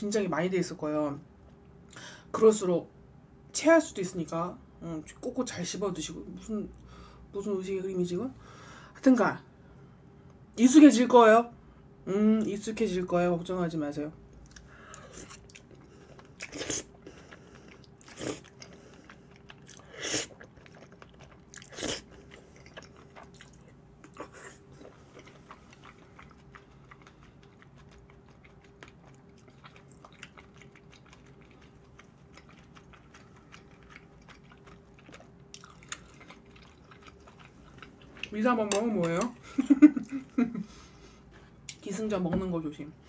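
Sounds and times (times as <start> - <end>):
person chewing food: 14.4 - 41.0.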